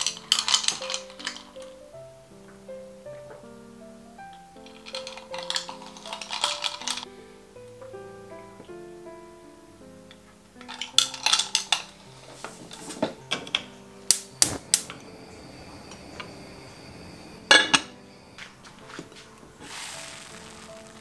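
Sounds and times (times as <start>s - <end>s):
cookware clinking and knocking: 0.0s - 1.8s, 4.7s - 7.1s, 10.7s - 15.1s, 17.5s - 19.3s
soft background music: 0.0s - 21.0s.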